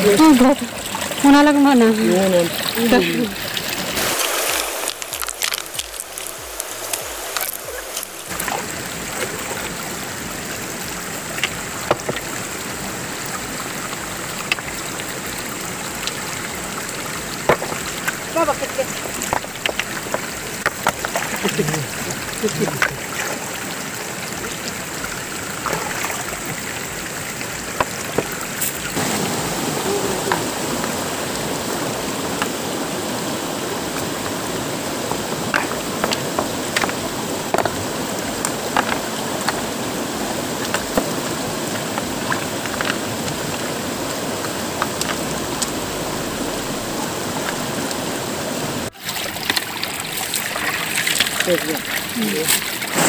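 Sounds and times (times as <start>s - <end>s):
stream running over stones: 0.0s - 53.0s.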